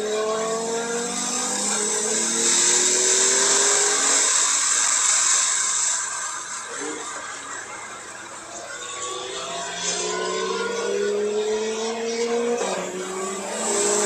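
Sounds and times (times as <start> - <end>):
sports car engine pulling hard: 0.0 - 5.9, 9.0 - 14.0
hiss of tyre spray: 0.9 - 6.8, 13.2 - 14.0.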